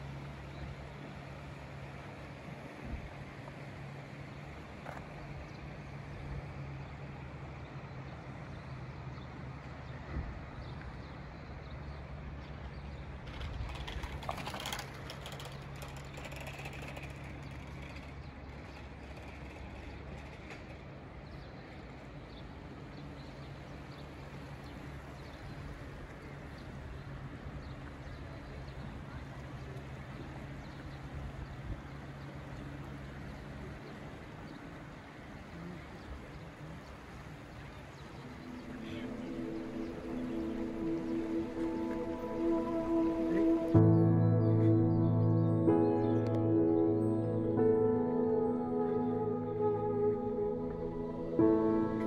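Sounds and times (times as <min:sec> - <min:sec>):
low engine hum: 0:00.0 - 0:52.0
clicking and rattling: 0:13.2 - 0:20.8.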